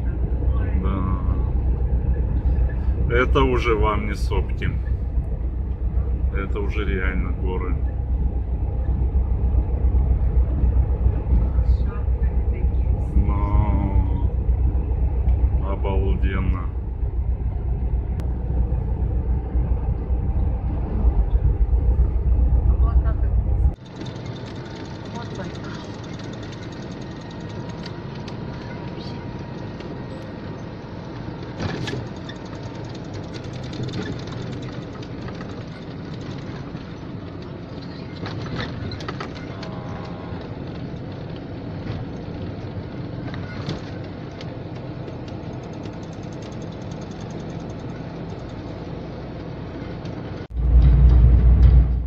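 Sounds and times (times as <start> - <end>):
loud low rumble: 0.0 - 23.8, 50.4 - 52.0
van road and engine noise: 0.0 - 52.0.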